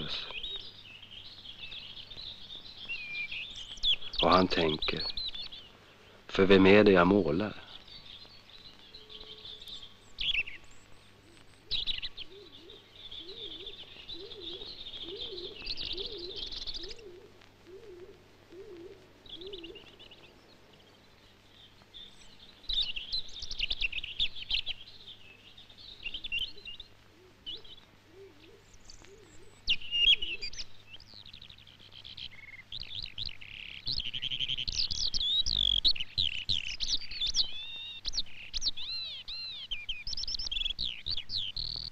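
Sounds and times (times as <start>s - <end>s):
songbirds trilling: 0.0s - 41.9s
low warbling bird call: 8.9s - 20.3s, 25.9s - 31.1s.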